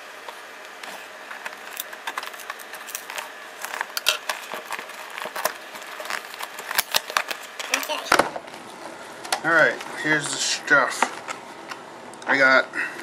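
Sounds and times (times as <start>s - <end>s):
cardboard scrapes and crackles: 0.8s - 8.1s
scissors cutting packing tape: 1.4s - 8.0s.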